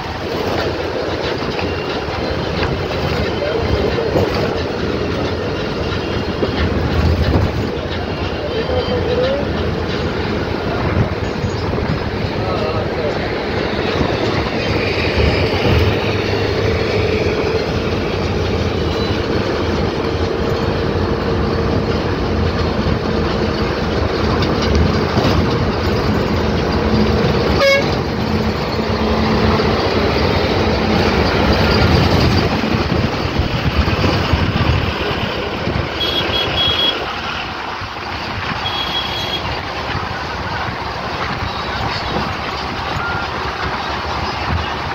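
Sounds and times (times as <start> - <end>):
vehicle engine drone: 0.0 - 44.9
high-pitched horn beeping: 27.5 - 28.1, 36.0 - 37.1, 38.6 - 39.5.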